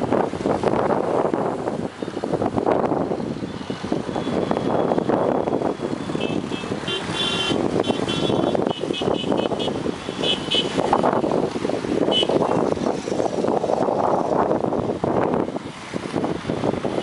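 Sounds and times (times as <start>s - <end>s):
road traffic passing: 0.0s - 17.0s
vehicle horns tooting: 6.1s - 11.1s, 12.1s - 12.6s.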